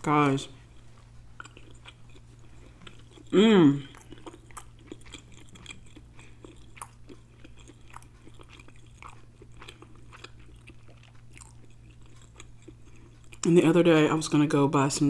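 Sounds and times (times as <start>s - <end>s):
person chewing: 0.3s - 13.5s.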